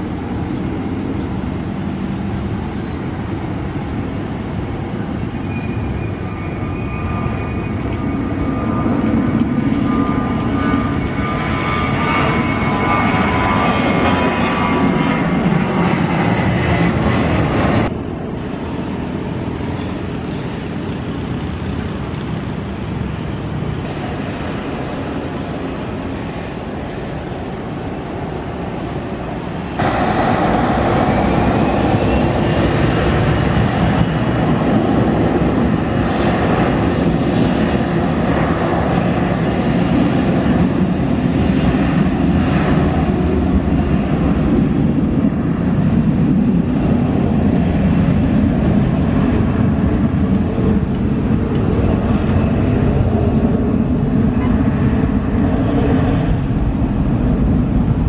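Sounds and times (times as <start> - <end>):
distant jet engine rumble: 0.0 - 58.0
jet engines spooling up: 0.0 - 58.0.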